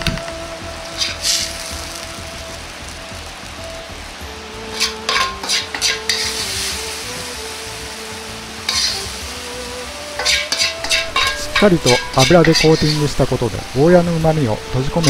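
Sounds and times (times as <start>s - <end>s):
food sizzling: 0.0s - 15.0s
ladle scraping and clinking: 1.0s - 1.4s, 4.7s - 6.4s, 8.7s - 9.1s, 10.2s - 13.1s.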